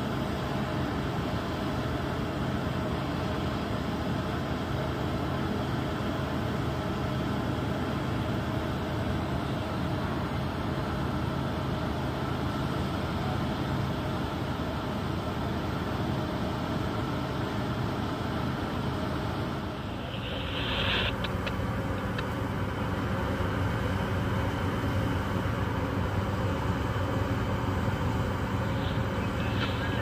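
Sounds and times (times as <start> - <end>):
low drone of ship engines: 0.0 - 30.0
brief hiss: 19.6 - 22.4, 28.5 - 30.0.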